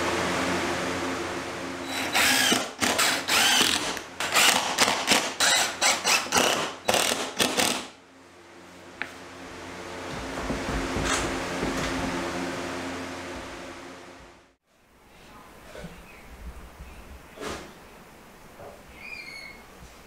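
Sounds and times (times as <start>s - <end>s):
steady background hum: 0.0s - 20.0s
cordless drill driving screws: 1.9s - 7.9s.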